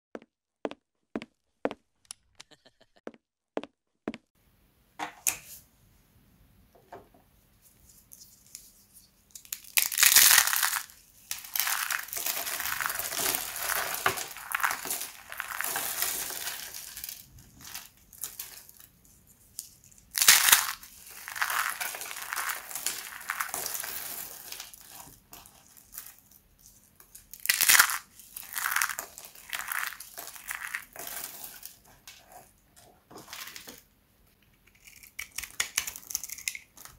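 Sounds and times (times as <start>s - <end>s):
soap crunching and crackling: 9.3s - 19.0s, 19.6s - 32.4s, 34.5s - 36.9s.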